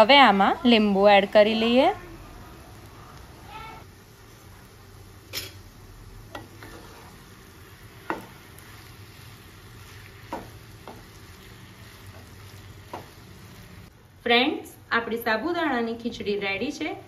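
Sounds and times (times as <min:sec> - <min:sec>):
faint sizzle: 0:00.0 - 0:17.0
spatula stirring in pan: 0:04.0 - 0:13.9
spatula knocking against pan: 0:08.0 - 0:08.3, 0:10.3 - 0:11.1.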